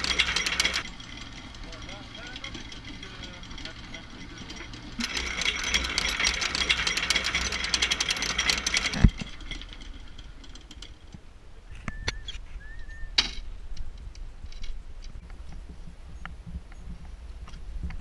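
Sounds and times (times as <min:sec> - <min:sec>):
winch ratcheting clicks: 0:00.0 - 0:11.2
brief squeak: 0:11.7 - 0:13.2.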